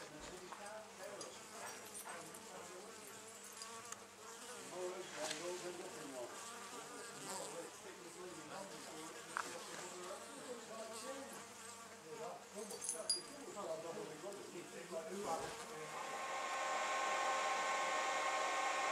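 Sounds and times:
honey bees buzzing: 13.5 - 18.9.

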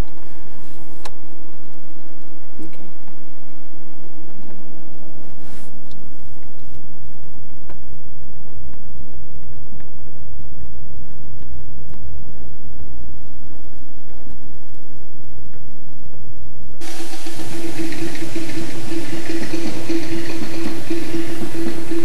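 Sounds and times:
car engine and road noise: 16.8 - 22.0.

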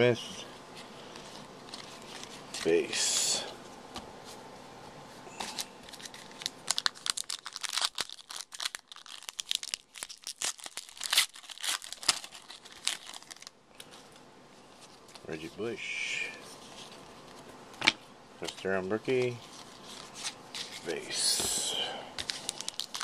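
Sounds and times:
foil wrapper tearing and crinkling: 5.4 - 13.9, 22.2 - 23.0.

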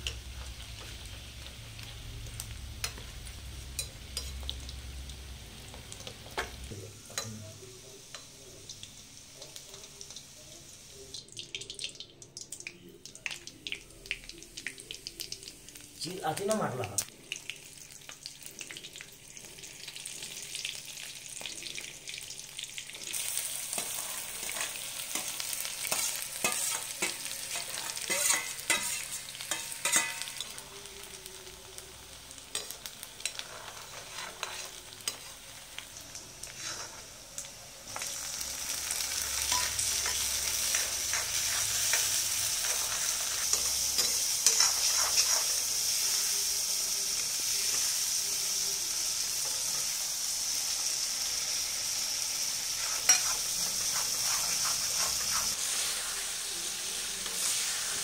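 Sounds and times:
vegetables sizzling in hot oil: 0.0 - 58.0
steel ladle scraping a pan: 23.7 - 30.5, 32.6 - 35.4, 36.4 - 37.1, 39.2 - 45.7, 52.8 - 56.1.

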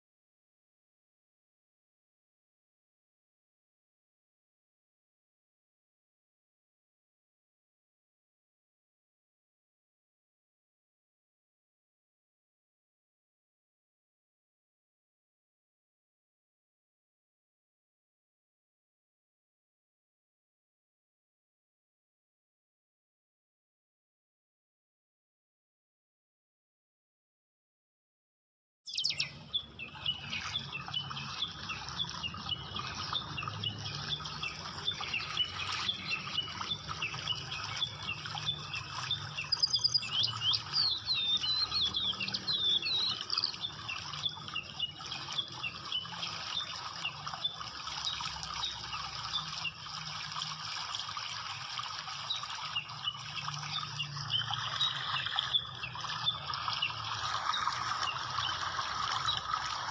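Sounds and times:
fish splashing in water: 43.1 - 59.9.

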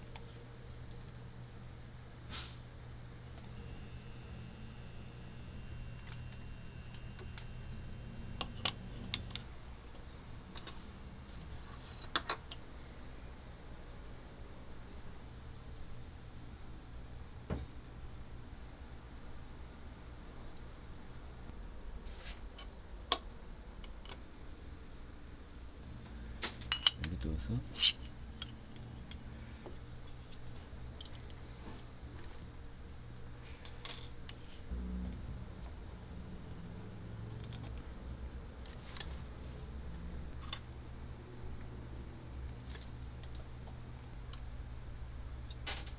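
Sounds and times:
steady low hum: 0.0 - 45.9
metallic clink with ring: 33.8 - 34.2.

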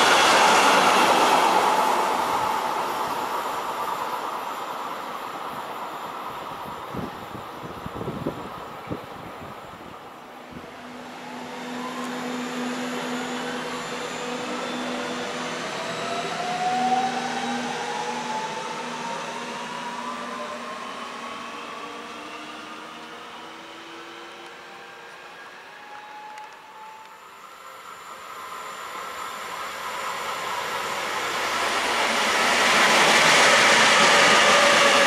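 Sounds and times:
electric train motor whine: 10.4 - 35.0.

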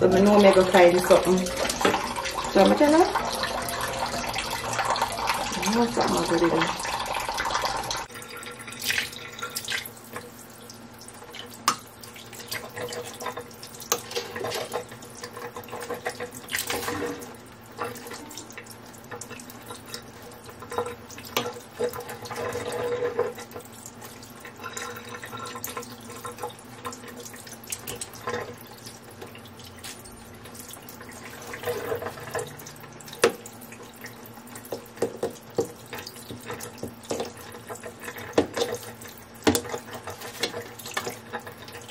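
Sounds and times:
tap running into metal sink: 34.7 - 41.5.

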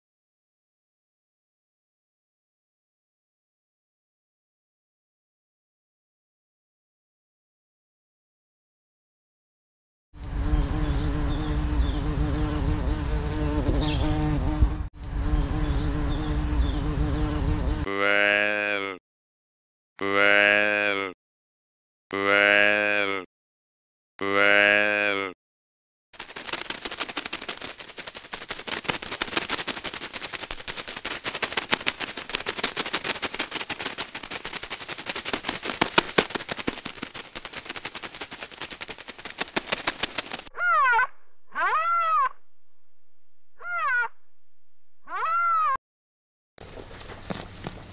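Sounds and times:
insect wings buzzing: 10.2 - 17.9, 26.2 - 40.5
rapid irregular clicking: 26.2 - 40.5.

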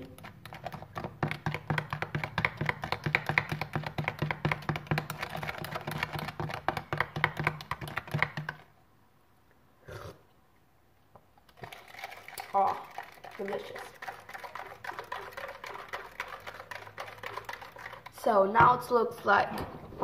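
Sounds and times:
metal spoon stirring in plastic cup: 0.0 - 8.7, 11.5 - 19.0.

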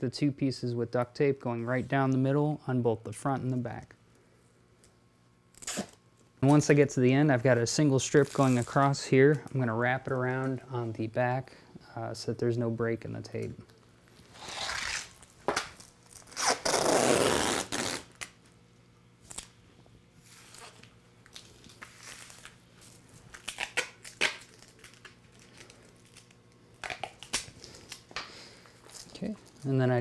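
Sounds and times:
duct tape ripping off roll: 5.5 - 6.0, 14.2 - 18.4, 20.2 - 28.0
tape rubbing and crackling: 5.5 - 6.0, 8.1 - 9.0, 14.1 - 18.4, 20.2 - 28.1.

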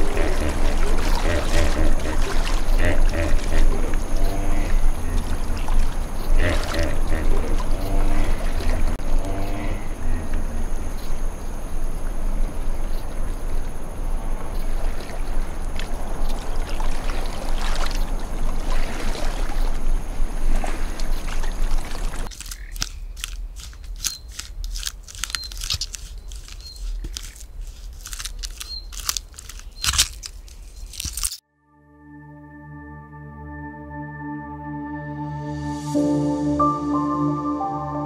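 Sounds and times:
water sloshing and trickling: 0.0 - 9.1, 11.0 - 31.3
sharp irregular clicks and crunches: 22.3 - 31.4.

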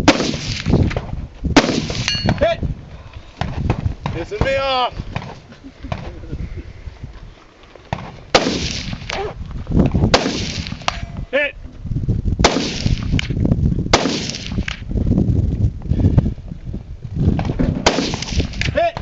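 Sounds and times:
gunshots with echo: 8.3 - 9.3, 10.1 - 11.1, 17.8 - 18.7.

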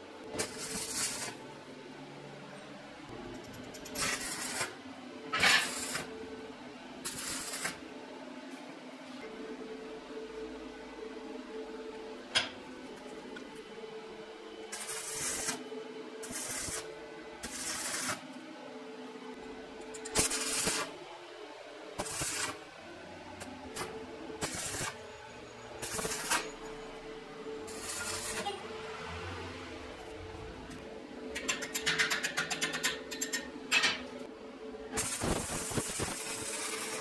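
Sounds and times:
arc welding crackle and hiss: 0.2 - 1.4, 3.3 - 6.1, 7.0 - 7.8, 14.7 - 15.6, 16.2 - 18.4, 19.8 - 21.0, 21.9 - 22.6, 23.4 - 25.1, 25.8 - 26.8, 27.6 - 28.6, 34.9 - 37.0.

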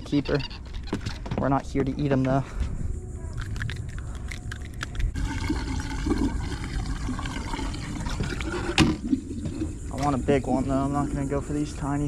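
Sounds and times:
water splashing and trickling: 3.5 - 11.4.

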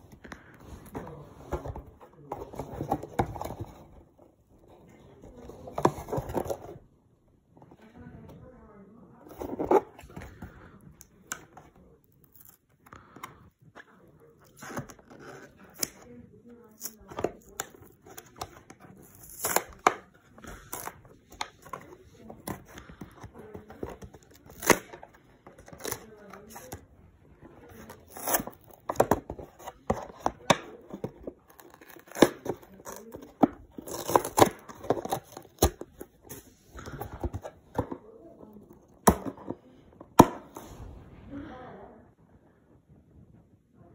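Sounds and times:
cardboard packaging scraping: 9.3 - 10.8, 14.2 - 39.4
packaging being torn and crinkled: 31.5 - 36.0.

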